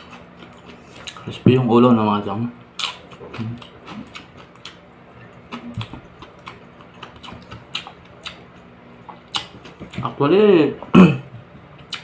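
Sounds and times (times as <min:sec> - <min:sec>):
crunchy chewing: 0:02.8 - 0:10.2.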